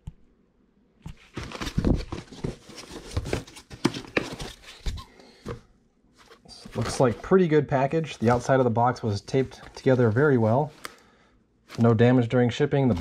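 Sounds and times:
cardboard box rustling and scraping: 0:01.3 - 0:05.1, 0:06.2 - 0:07.3.

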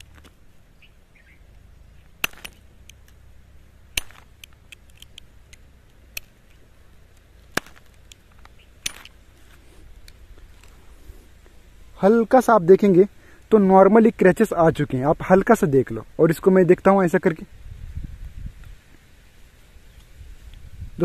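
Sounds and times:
sharp clicks: 0:03.9 - 0:09.2.

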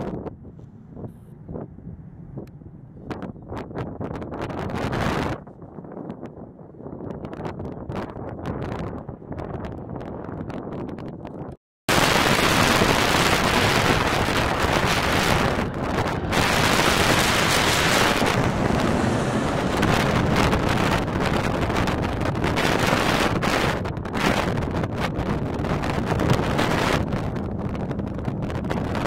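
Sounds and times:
wind buffeting microphone: 0:00.0 - 0:29.0
jet airliner passing overhead: 0:12.3 - 0:23.6.

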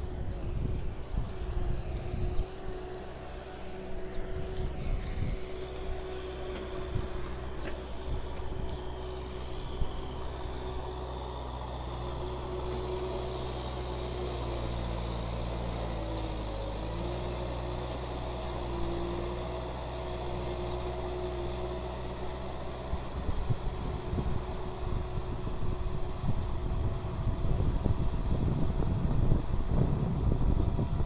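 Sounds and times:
wind buffeting microphone: 0:00.0 - 0:11.0, 0:22.9 - 0:31.0
tractor diesel engine running: 0:00.0 - 0:31.0.

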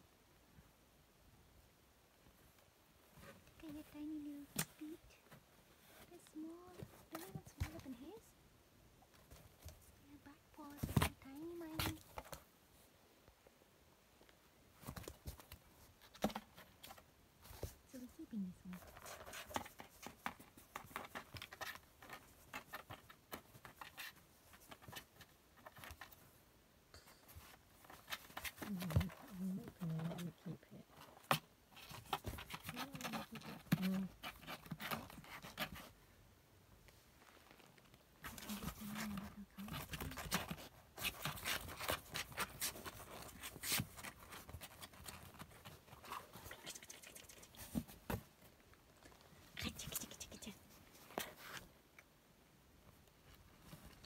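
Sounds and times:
kitten claws scratching cardboard: 0:14.8 - 0:17.8, 0:18.7 - 0:26.3, 0:27.4 - 0:30.3, 0:31.0 - 0:36.0, 0:38.2 - 0:48.3.

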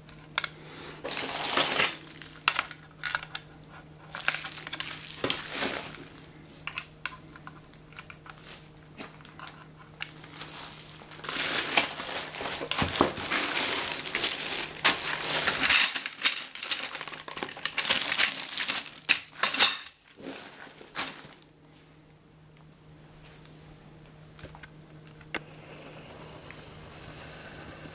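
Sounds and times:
plastic bags crinkling: 0:01.0 - 0:06.9, 0:07.9 - 0:21.6.

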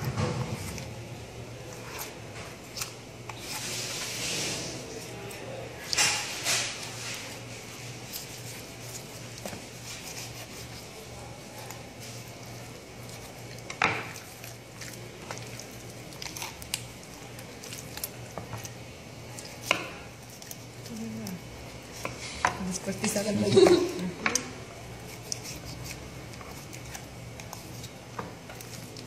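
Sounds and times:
knife scraping chicken on board: 0:08.3 - 0:10.9.

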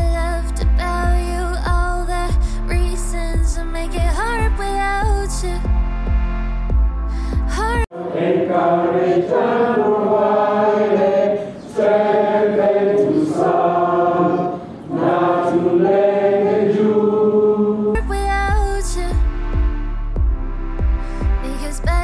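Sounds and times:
group of people singing: 0:07.9 - 0:18.0.

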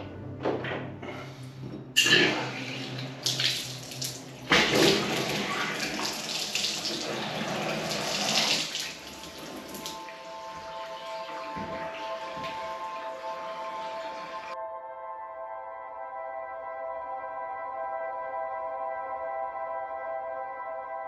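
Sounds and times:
tap water running into bathtub: 0:02.0 - 0:14.6.

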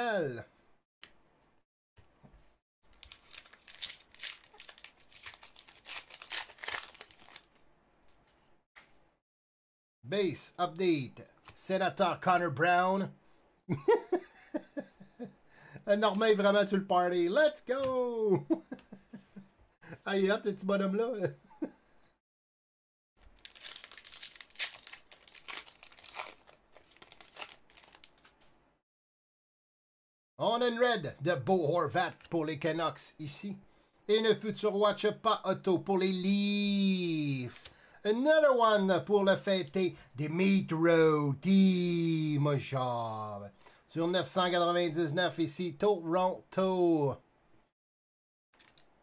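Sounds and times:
cards being handled: 0:02.4 - 0:08.9, 0:23.4 - 0:28.5
wrapper crinkling and tearing: 0:02.9 - 0:07.6, 0:23.2 - 0:28.4.

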